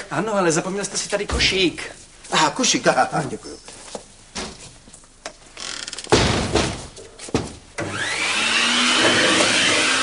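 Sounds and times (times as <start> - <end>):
door slamming shut: 6.1 - 7.5
vacuum cleaner motor whine: 7.8 - 10.0.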